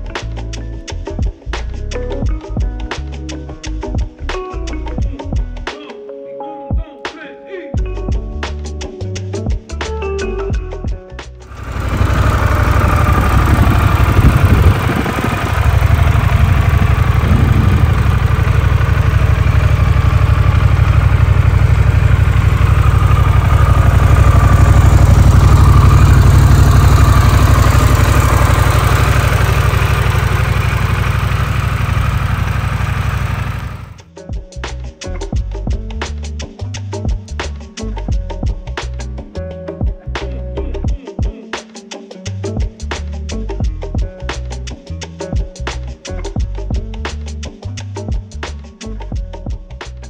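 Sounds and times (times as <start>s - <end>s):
motorcycle engine idling: 11.5s - 34.0s.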